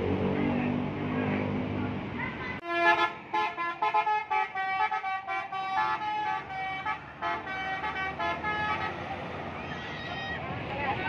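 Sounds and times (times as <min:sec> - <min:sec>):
multi-tone musical air horn: 0:02.6 - 0:09.0.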